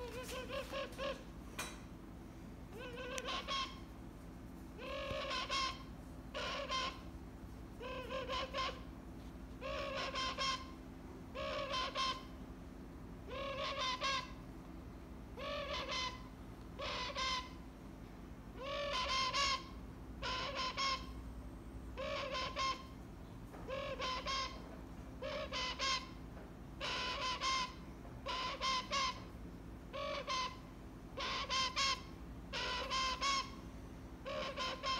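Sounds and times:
toucan croaking calls: 0:00.0 - 0:01.3, 0:02.7 - 0:03.9, 0:04.8 - 0:07.1, 0:07.8 - 0:08.9, 0:09.6 - 0:12.4, 0:13.3 - 0:14.4, 0:15.4 - 0:17.7, 0:18.6 - 0:21.2, 0:21.9 - 0:23.0, 0:23.6 - 0:26.2, 0:26.8 - 0:34.9.

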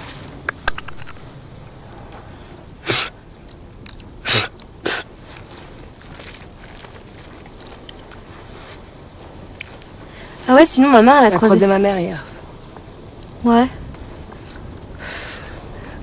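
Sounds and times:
steady outdoor hiss: 0:00.0 - 0:16.0
person blowing forceful puffs: 0:02.8 - 0:03.2, 0:04.2 - 0:05.4.

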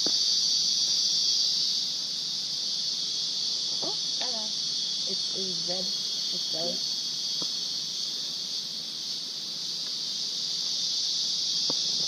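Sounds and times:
insect chorus: 0:00.0 - 0:12.0.

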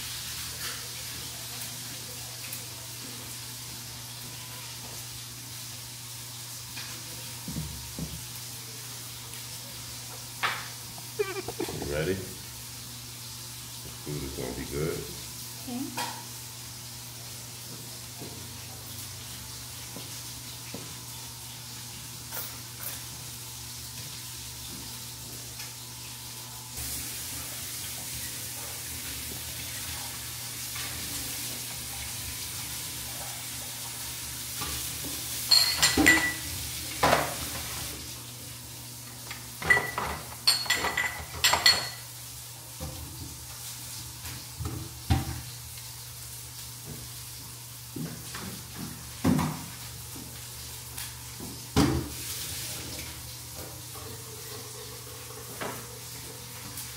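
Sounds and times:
tap water running: 0:00.0 - 0:56.9
dishes and cutlery clinking: 0:35.4 - 0:37.4, 0:39.6 - 0:42.1.

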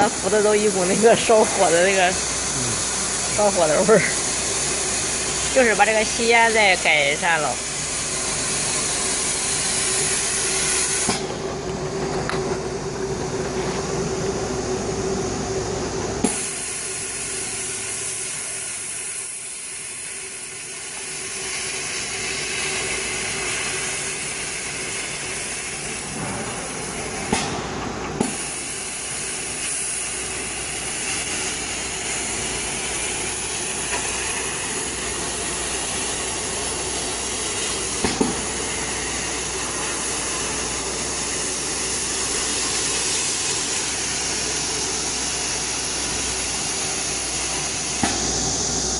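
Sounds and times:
laser cutter hissing air: 0:00.0 - 0:48.9.

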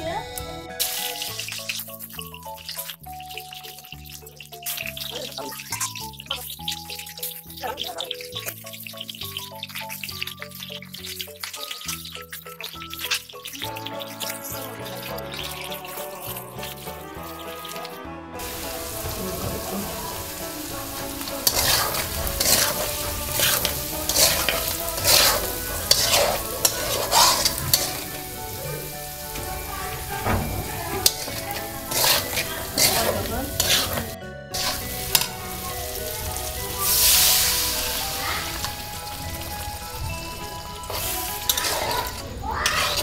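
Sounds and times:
metal spatula scraping pan: 0:00.8 - 0:35.6, 0:40.9 - 0:43.0
potatoes sizzling in hot oil: 0:00.8 - 0:43.0.

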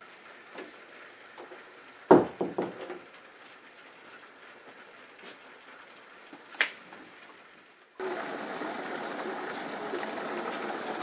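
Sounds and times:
heavy rain on hard patio: 0:00.0 - 0:11.0.

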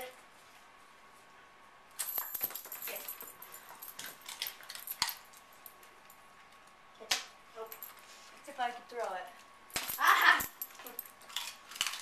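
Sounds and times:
dog claws clicking on floor: 0:02.0 - 0:06.0, 0:09.0 - 0:12.0
collar tags jingling: 0:02.0 - 0:06.2, 0:09.7 - 0:12.0.

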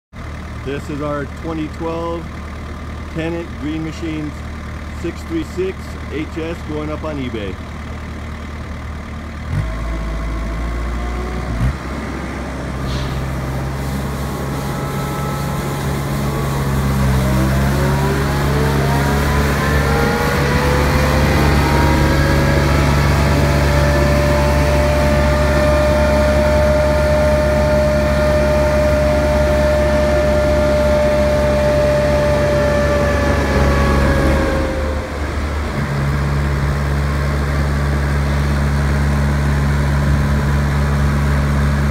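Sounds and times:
street sweeper engine drone: 0:00.1 - 0:41.9
sweeping system whine: 0:12.4 - 0:37.5.

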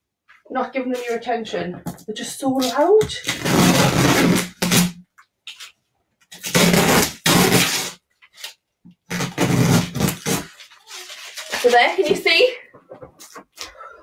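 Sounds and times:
masking tape peeling off plastic: 0:02.6 - 0:11.8.

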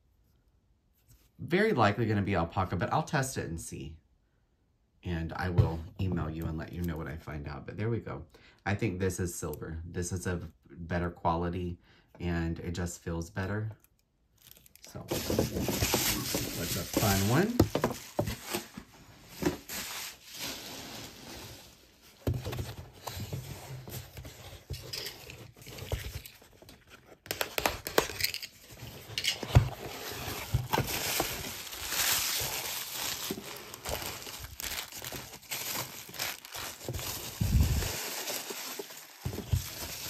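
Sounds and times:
wrapping rustling and crinkling: 0:14.4 - 0:40.0
items clicking and knocking: 0:17.6 - 0:18.6.

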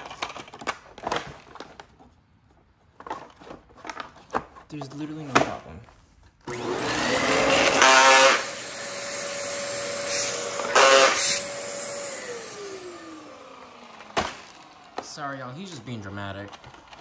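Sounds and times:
vacuum brushroll grinding: 0:06.4 - 0:17.0
vacuum cleaner whining: 0:06.4 - 0:17.0.

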